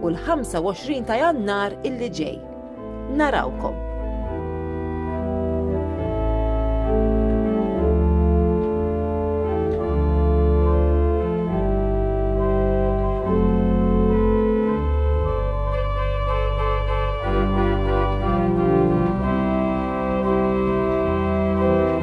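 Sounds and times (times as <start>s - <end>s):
organ chords: 0.0s - 22.0s.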